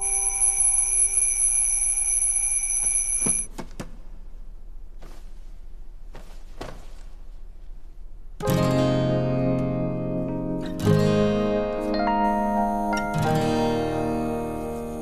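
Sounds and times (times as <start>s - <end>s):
alarm clock ringing: 0.0s - 3.5s.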